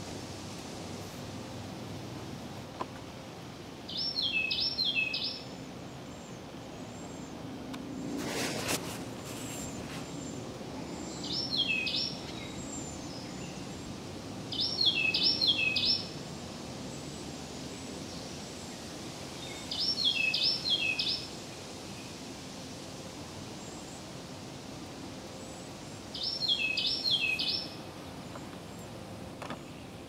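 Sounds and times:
wren singing: 0:03.8 - 0:07.4, 0:09.9 - 0:16.2, 0:16.9 - 0:21.3, 0:25.3 - 0:30.0.

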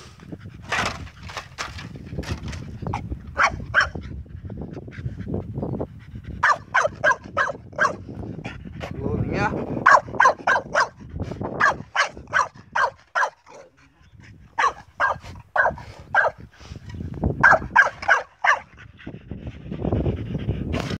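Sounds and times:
shovel digging sandy soil: 0:00.0 - 0:03.6
dog barking: 0:03.4 - 0:04.0, 0:06.4 - 0:08.0, 0:09.8 - 0:11.0, 0:11.6 - 0:13.8, 0:14.5 - 0:16.4, 0:17.4 - 0:18.7.

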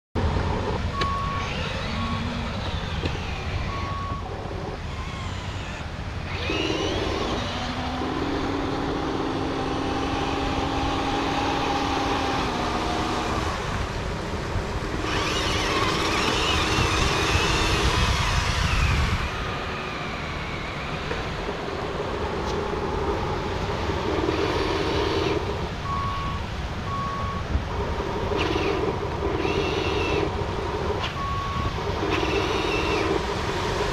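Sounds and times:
electric motor and gears whining: 0:00.2 - 0:33.9
electronic reversing beeps: 0:00.9 - 0:04.8, 0:24.0 - 0:30.3, 0:31.0 - 0:33.2.

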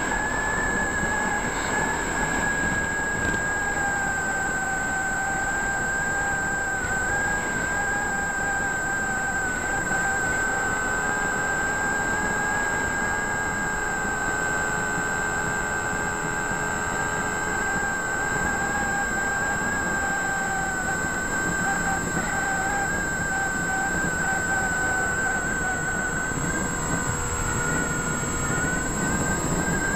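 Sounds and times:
electric motor propeller whine: 0:00.0 - 0:29.9
wind noise: 0:17.7 - 0:29.9.

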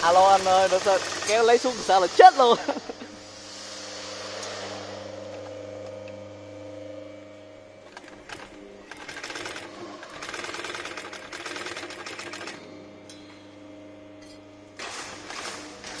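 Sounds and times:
sewing machine stitching: 0:00.0 - 0:01.4, 0:07.9 - 0:12.6
sewing machine hum: 0:00.0 - 0:02.0, 0:07.8 - 0:12.6, 0:14.8 - 0:16.0.

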